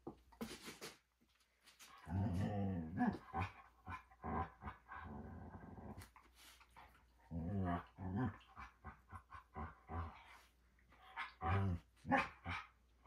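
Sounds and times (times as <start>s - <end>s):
dog growling: 2.0s - 6.1s, 7.3s - 10.4s.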